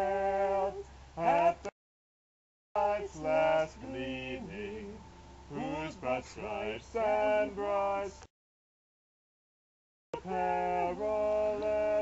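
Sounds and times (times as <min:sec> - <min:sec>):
man singing slowly: 0:00.0 - 0:01.7, 0:02.8 - 0:08.2, 0:10.2 - 0:12.0.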